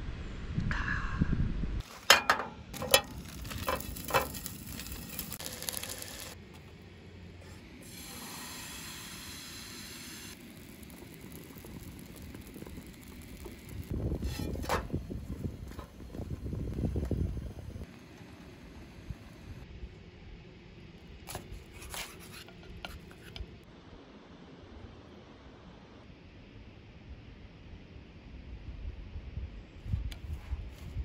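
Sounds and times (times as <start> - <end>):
metal spatula scraping: 1.8 - 6.4, 14.1 - 15.0, 21.3 - 23.5
batter sizzling in frying pan: 2.8 - 6.4, 7.9 - 17.8.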